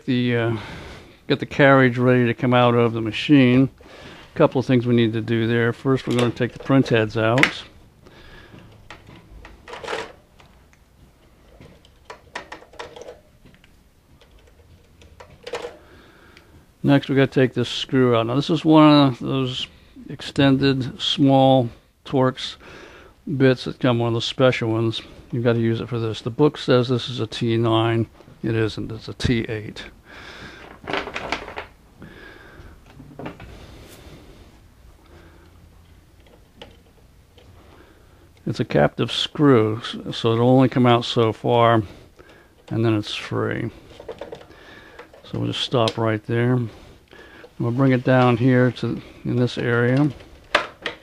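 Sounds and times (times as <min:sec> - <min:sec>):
low steady hum: 0:00.0 - 0:51.0
plastic clicks: 0:36.2 - 0:37.6, 0:49.7 - 0:51.0.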